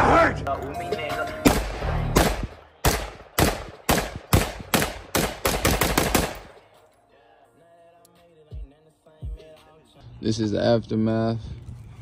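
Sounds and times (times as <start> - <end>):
gunshots hitting steel target: 1.4 - 6.6.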